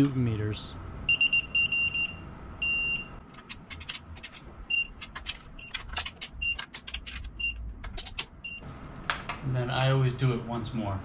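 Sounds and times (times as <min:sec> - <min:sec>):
short electronic beeps: 0:01.1 - 0:03.2, 0:08.4 - 0:08.6.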